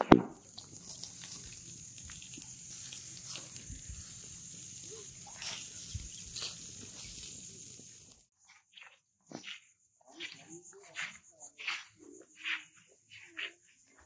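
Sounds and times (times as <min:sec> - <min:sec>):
charcoal embers hissing and crackling: 0:00.0 - 0:08.3.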